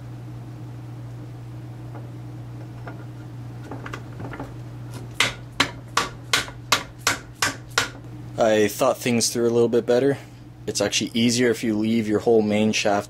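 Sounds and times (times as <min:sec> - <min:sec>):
steady low hum: 0:00.0 - 0:13.0
hammer tapping steel shaft: 0:03.7 - 0:08.1.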